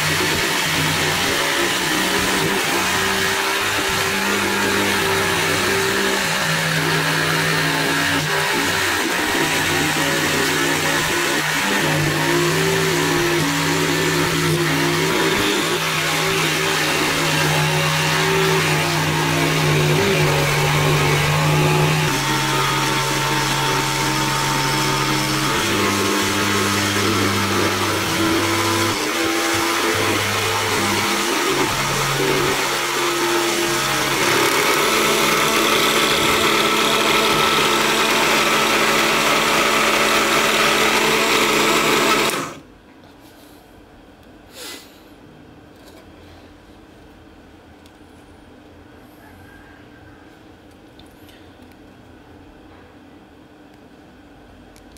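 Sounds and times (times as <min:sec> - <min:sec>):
electric motor humming: 0:00.0 - 0:42.6
jigsaw blade rasping through wood: 0:00.0 - 0:42.6.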